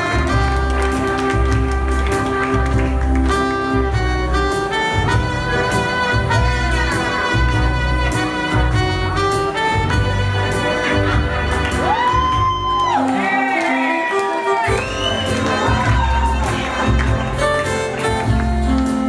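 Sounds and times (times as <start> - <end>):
saxophones: 0.0 - 12.0
pulsing bass: 0.0 - 12.7
trumpet: 0.0 - 18.4.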